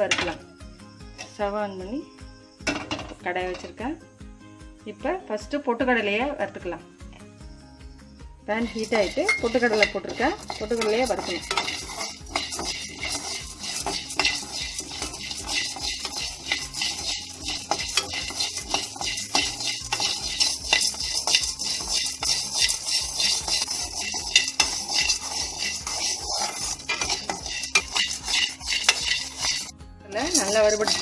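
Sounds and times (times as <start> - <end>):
dry grains rattling in a pan: 8.5 - 31.0
spatula scraping a metal pan: 8.6 - 31.0.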